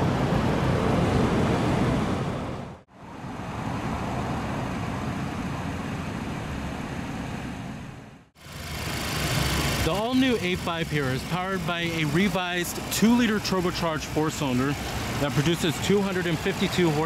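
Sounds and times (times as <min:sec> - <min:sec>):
outdoor background noise: 0:00.0 - 0:17.0
car engine idling: 0:08.4 - 0:17.0.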